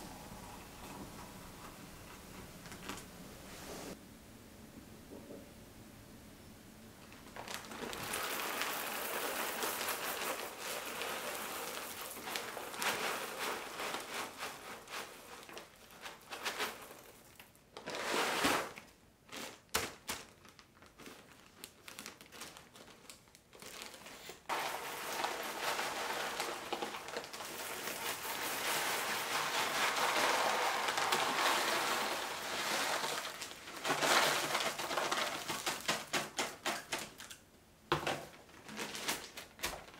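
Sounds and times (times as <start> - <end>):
plastic bags crinkling: 7.0 - 39.9
coffee beans pouring: 7.3 - 18.7, 24.5 - 36.0.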